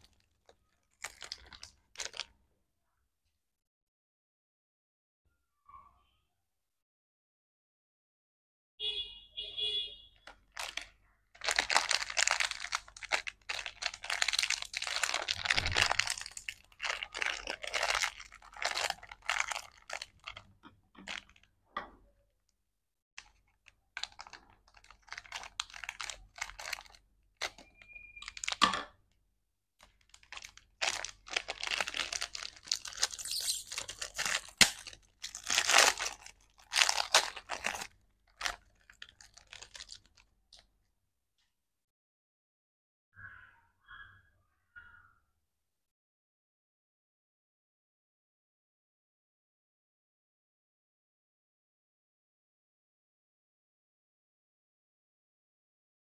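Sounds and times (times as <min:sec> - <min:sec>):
plastic wrappers crinkling and tearing: 0:00.0 - 0:02.3, 0:10.2 - 0:21.5, 0:23.2 - 0:28.6, 0:29.8 - 0:40.6
scissors snipping wrapper: 0:30.0 - 0:40.2.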